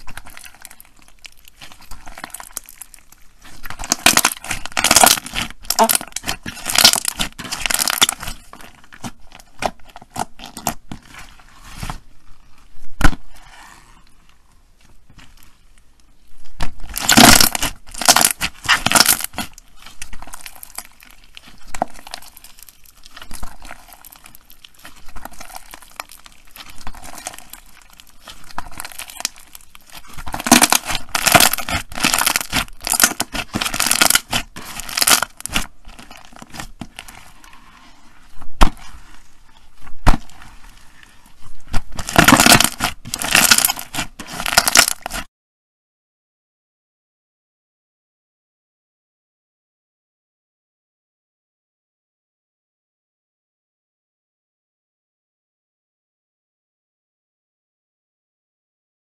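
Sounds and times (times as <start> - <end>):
slime crackling by hand: 0.0 - 45.3.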